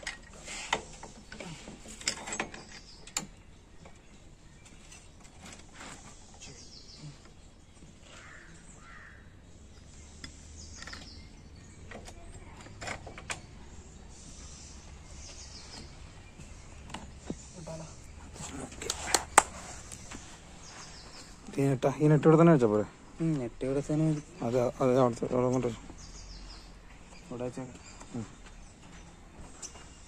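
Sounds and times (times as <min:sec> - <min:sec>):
crow cawing: 0:08.1 - 0:09.3.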